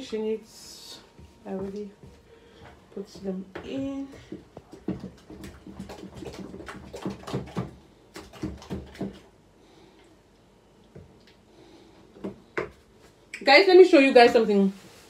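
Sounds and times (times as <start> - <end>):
wooden spoon knocking in plastic bowl: 3.1 - 9.2.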